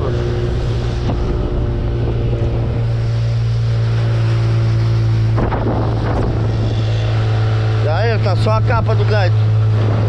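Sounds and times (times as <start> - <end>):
wind noise: 0.0 - 7.8
outboard motor running: 0.0 - 10.0
water noise: 0.0 - 10.0.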